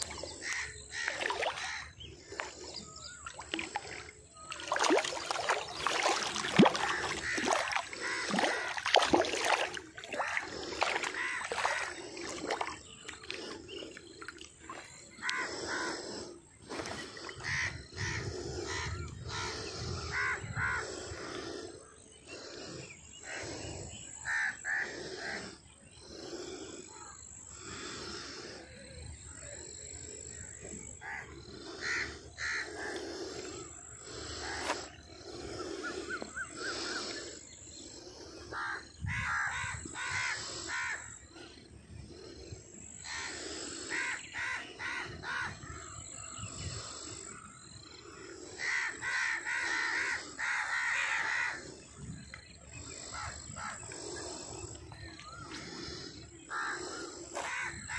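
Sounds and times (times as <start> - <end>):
birds calling: 0.0 - 57.9.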